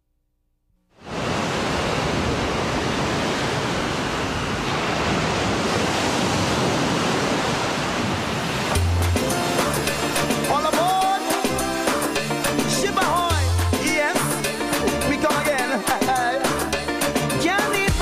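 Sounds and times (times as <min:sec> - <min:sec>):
ocean surf rushing: 0:01.0 - 0:17.9
music: 0:08.7 - 0:18.0.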